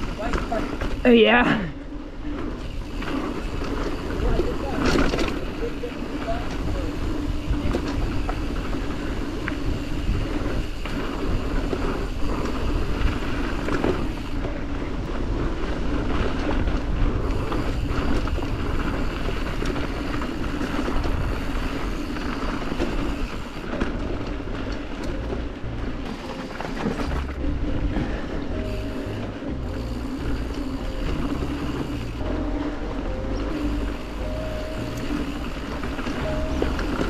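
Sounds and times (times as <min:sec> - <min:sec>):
bike tyres on dirt and rock: 0:00.0 - 0:37.0
wind rumble on microphone: 0:00.0 - 0:37.0.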